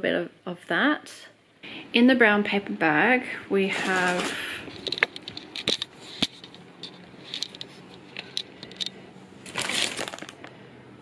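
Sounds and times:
foil packet crinkling: 0:03.7 - 0:10.5
paper bag rustling: 0:03.7 - 0:10.5.

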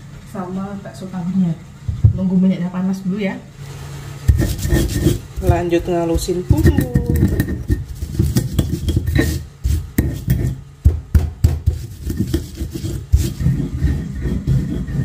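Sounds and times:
stone pestle grinding in mortar: 0:04.3 - 0:15.0.

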